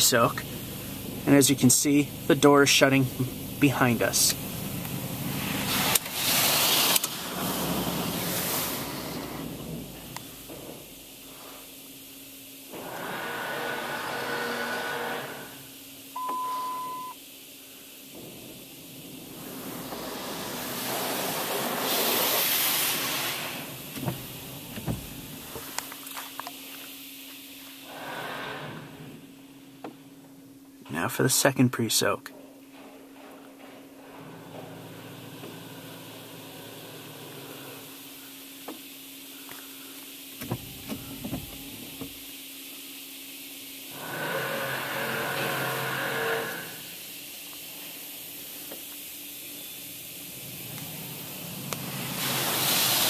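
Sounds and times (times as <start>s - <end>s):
steady whine: 0.0s - 52.9s
spray hissing on car: 0.4s - 13.4s, 17.2s - 28.6s, 34.7s - 44.8s, 46.7s - 53.0s.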